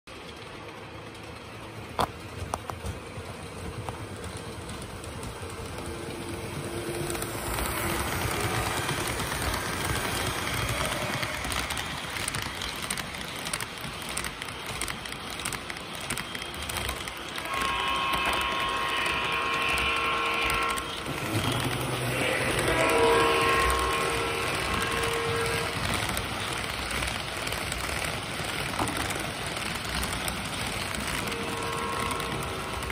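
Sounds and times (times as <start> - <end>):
model train rumbling: 0.1 - 32.9
wheels ticking over rail joints: 0.1 - 32.9.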